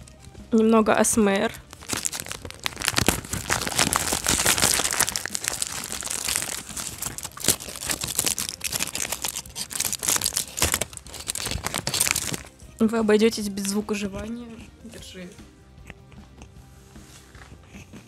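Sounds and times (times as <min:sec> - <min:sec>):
plastic wrapper crinkling: 0:01.6 - 0:12.6.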